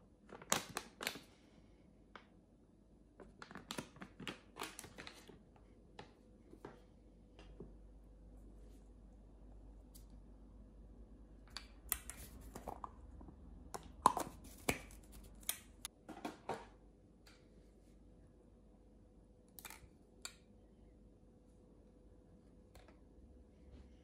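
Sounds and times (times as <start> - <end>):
plastic cups clicking and knocking: 11.5 - 16.7.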